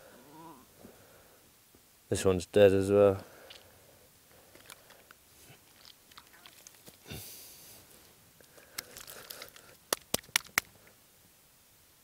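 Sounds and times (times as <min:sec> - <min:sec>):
faint rustling and handling: 0:03.3 - 0:11.0.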